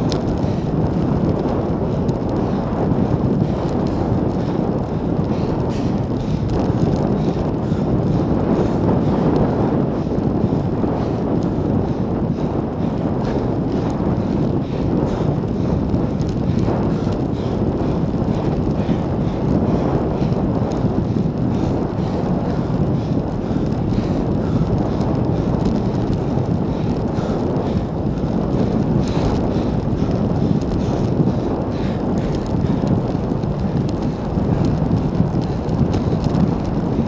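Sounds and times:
wind buffeting microphone: 0.0s - 37.0s
faint ticks: 33.7s - 36.8s.

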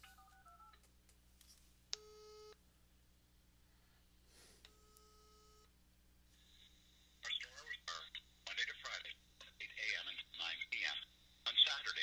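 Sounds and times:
phone call tones: 0.0s - 0.8s.

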